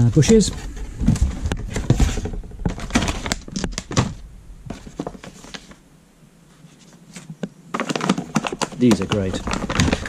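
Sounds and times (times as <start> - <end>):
plastic bags crinkling: 2.6 - 5.8, 7.7 - 10.0.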